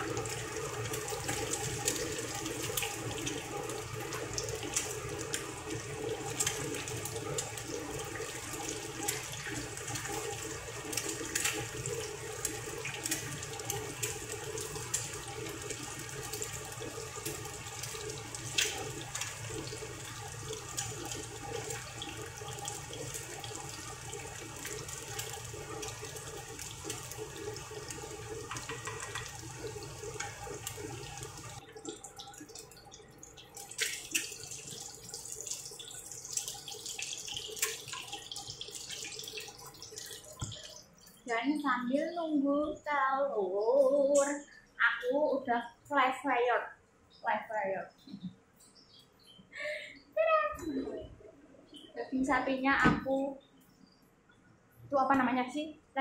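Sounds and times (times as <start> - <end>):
eggs sizzling in oil: 0.0 - 41.3.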